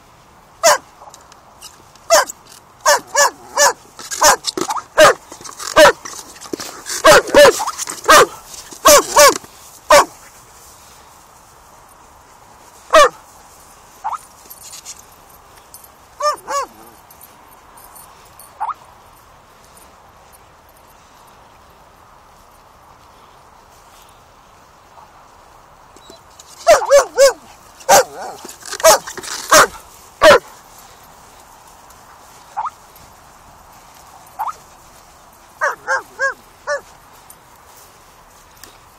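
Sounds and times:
dog barking: 0.6s - 0.9s, 2.1s - 5.2s, 5.8s - 6.0s, 7.0s - 10.1s, 12.9s - 13.2s, 16.2s - 17.0s, 26.6s - 30.5s, 35.6s - 36.9s
dog yelping: 0.6s - 0.9s, 2.1s - 5.2s, 5.8s - 6.0s, 7.0s - 10.1s, 12.9s - 13.2s, 16.2s - 17.0s, 18.6s - 18.8s, 26.0s - 30.4s, 32.6s - 32.8s, 34.3s - 34.6s, 35.6s - 36.9s
dog whining: 16.2s - 17.0s.

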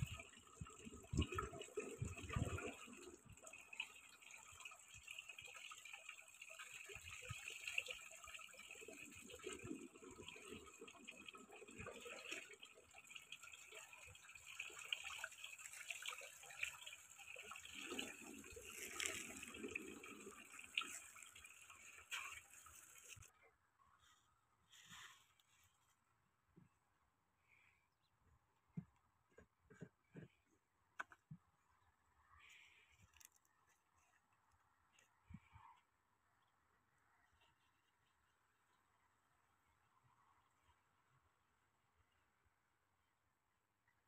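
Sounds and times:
water splashing into a pit: 0.0s - 23.3s.

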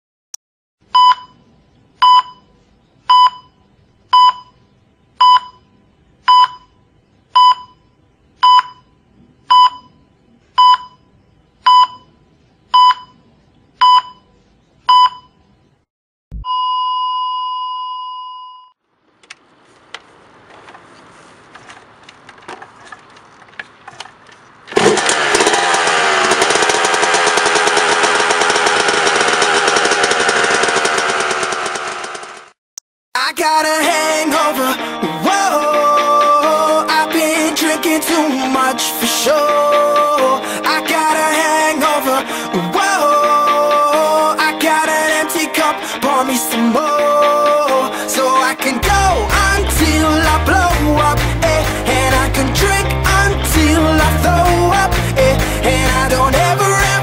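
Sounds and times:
electronic beeps: 1.0s - 6.8s, 7.4s - 13.2s
faint handling noises: 19.2s - 24.5s
two-stroke motorcycle engine: 24.7s - 32.6s.

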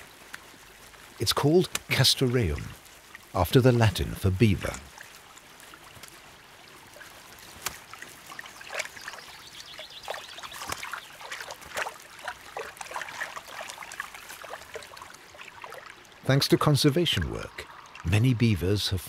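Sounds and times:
small splashes: 0.0s - 18.4s
faint trickle of water: 0.0s - 19.0s
wet clicks in mud: 1.3s - 2.0s, 7.0s - 14.0s.

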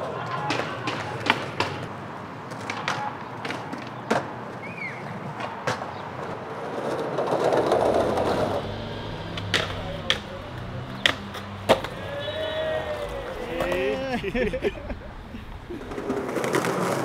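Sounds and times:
skateboard clacks and knocks: 0.0s - 8.5s, 15.8s - 17.0s
skateboard wheels rolling on concrete: 0.0s - 17.0s
rushing noise: 6.8s - 17.0s.

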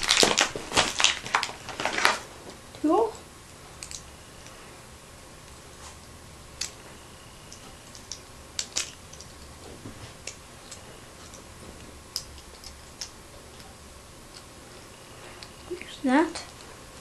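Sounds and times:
small toy parts clicking together: 3.8s - 4.0s, 7.5s - 9.5s, 12.1s - 13.2s.

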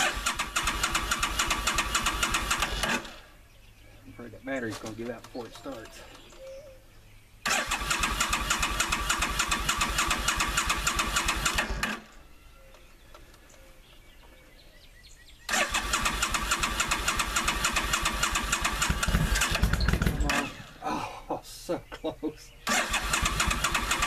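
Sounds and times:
electric starter cranking engine: 0.0s - 3.2s, 7.4s - 12.2s, 15.5s - 20.7s, 22.7s - 24.0s.

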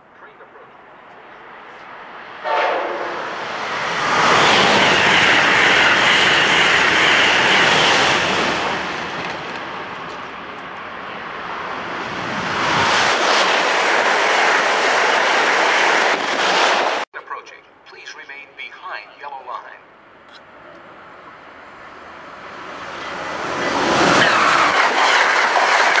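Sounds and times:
train wheels rushing on rails: 1.7s - 17.0s, 22.1s - 26.0s.

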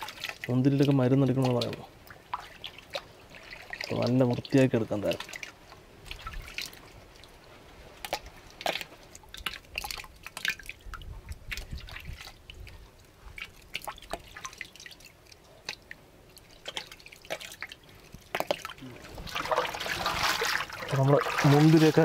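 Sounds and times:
water splashing and dripping: 0.0s - 22.0s
hands swishing grapes in water: 16.4s - 22.0s.

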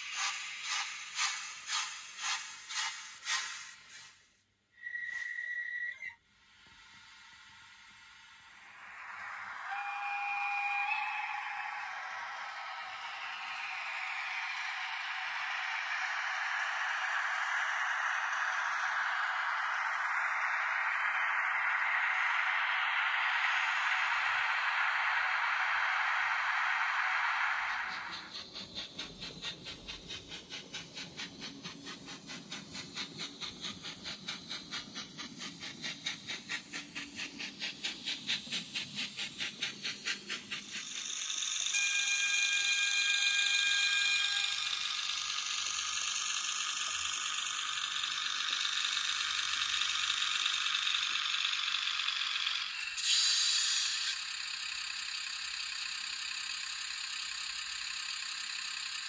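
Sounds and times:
model train wheels clicking: 0.0s - 4.2s, 22.6s - 59.0s
short steady tone: 8.4s - 28.3s, 41.6s - 46.0s.

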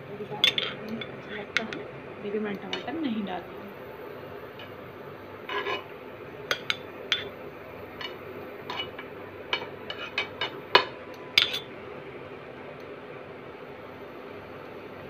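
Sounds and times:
steel spoon clinking on griddle: 0.4s - 1.8s, 6.5s - 7.3s, 8.0s - 11.7s.

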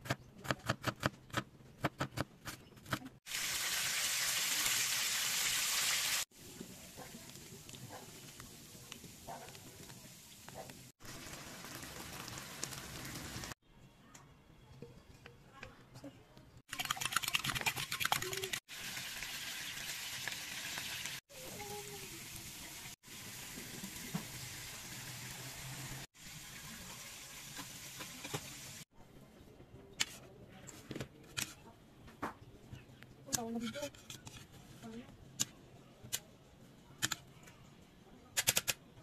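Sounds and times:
hot oil sizzling in a wok: 3.3s - 13.6s, 18.7s - 28.8s
fork beating eggs in bowl: 16.7s - 18.6s.

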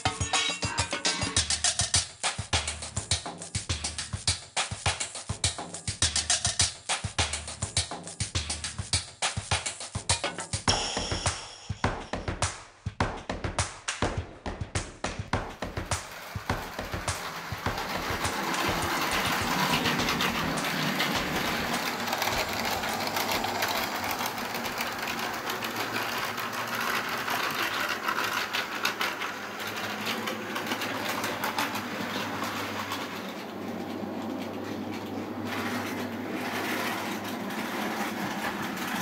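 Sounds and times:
wheels clicking over rail joints: 15.2s - 39.0s
model train motor whir: 15.6s - 39.0s.

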